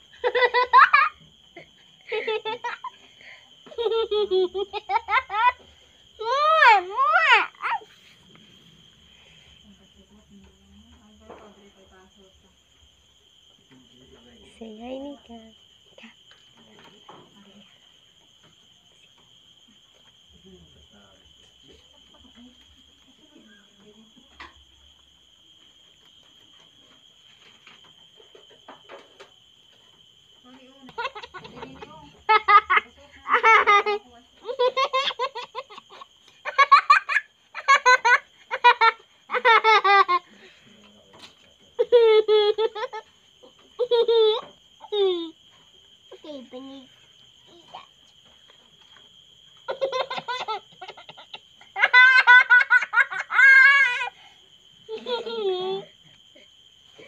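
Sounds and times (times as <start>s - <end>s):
young child giggling: 0.2s - 3.0s, 3.7s - 5.6s, 30.9s - 40.2s, 49.7s - 54.1s, 54.9s - 56.0s.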